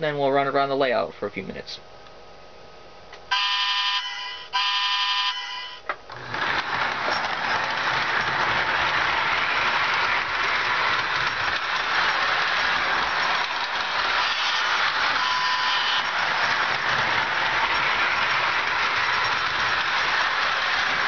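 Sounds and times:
toy train whistle blasts: 3.3s - 5.9s, 15.2s - 16.1s
toy train motor whirring: 3.3s - 21.0s.

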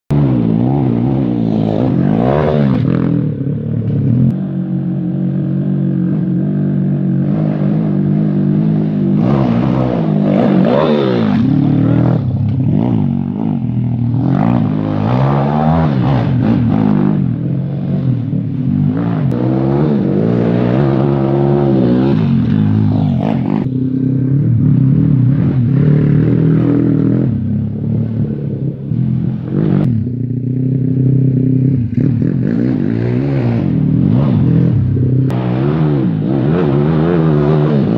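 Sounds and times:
small petrol engine revving: 5.6s - 18.1s.

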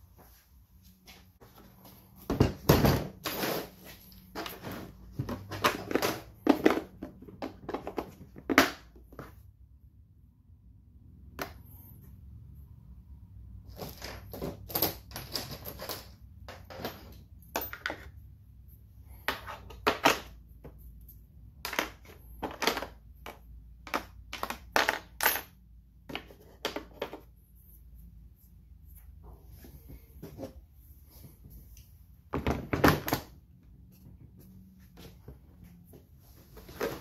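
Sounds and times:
items clattering in plastic case: 2.3s - 9.4s.

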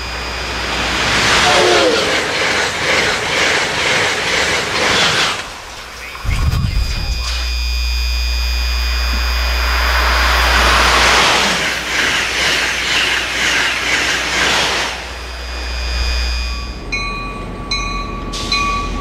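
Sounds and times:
high-speed train passing: 0.0s - 6.7s, 8.6s - 19.0s
low rumble: 6.2s - 12.8s.

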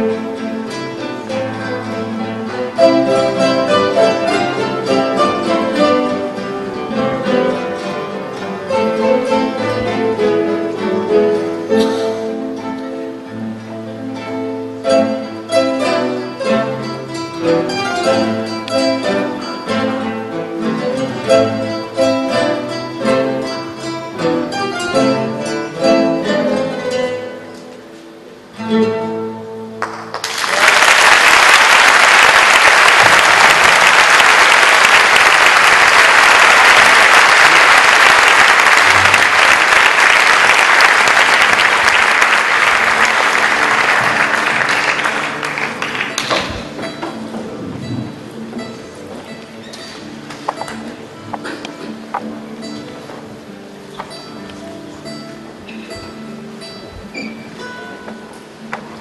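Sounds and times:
classical guitars playing: 0.0s - 59.0s
audience applause: 29.8s - 46.8s.

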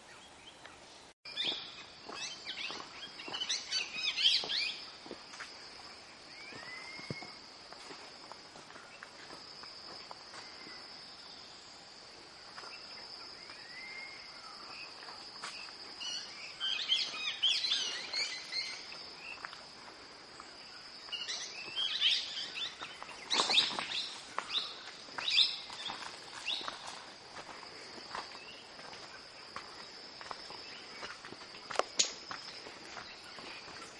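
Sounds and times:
birds chirping and whistling: 21.1s - 26.7s.

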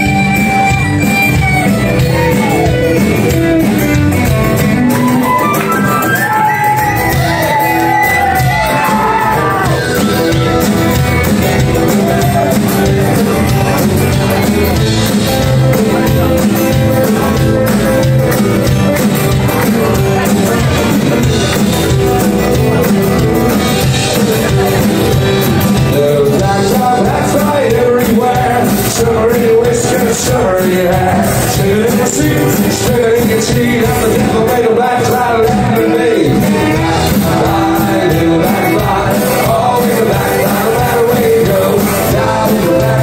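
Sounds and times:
live band music: 0.0s - 43.0s
person singing: 23.8s - 43.0s.

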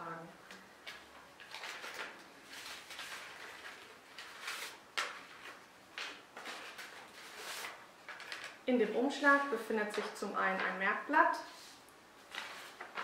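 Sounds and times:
envelope and paper rustling: 0.8s - 8.6s, 11.4s - 13.0s.

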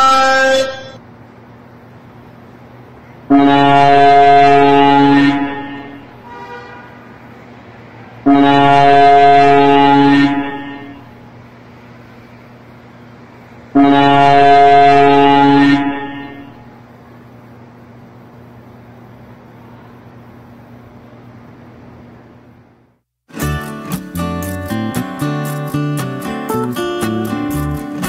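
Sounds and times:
truck air horn blasts: 0.0s - 1.0s, 3.3s - 7.3s, 8.2s - 11.2s, 13.8s - 16.7s
highway traffic noise: 0.0s - 28.0s.

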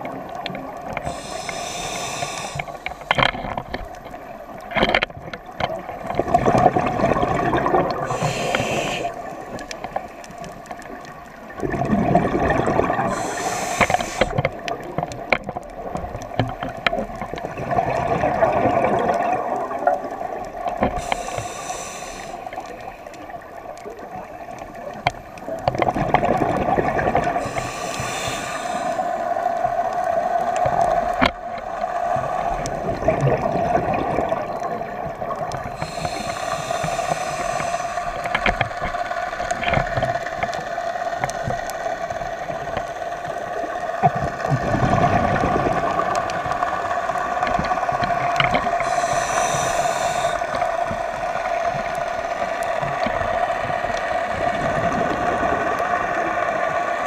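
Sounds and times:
exhaled bubbles gurgling: 0.0s - 57.0s
regulator inhale hiss: 0.9s - 4.3s, 8.0s - 10.3s, 12.9s - 14.8s, 20.8s - 23.3s, 27.3s - 29.5s, 35.6s - 38.7s, 48.6s - 51.1s.

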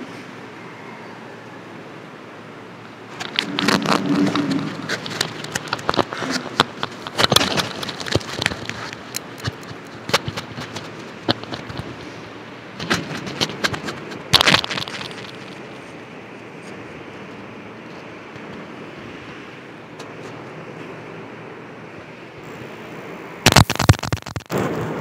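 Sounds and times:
handling knocks and rustling: 3.1s - 12.2s.

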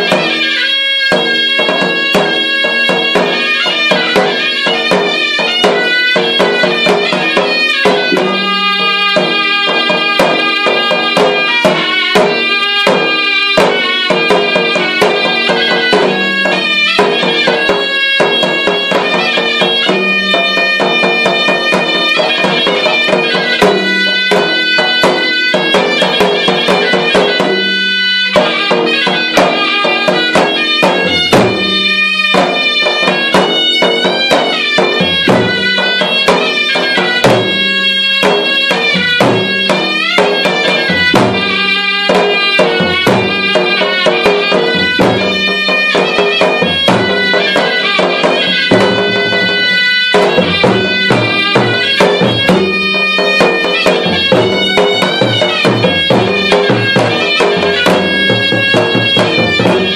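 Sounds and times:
hand drums quick rhythm: 0.0s - 59.9s
shawm playing reedy melody: 0.0s - 59.9s.

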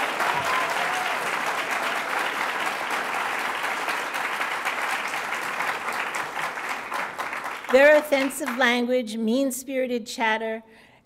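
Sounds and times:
audience applauding: 0.0s - 8.7s.

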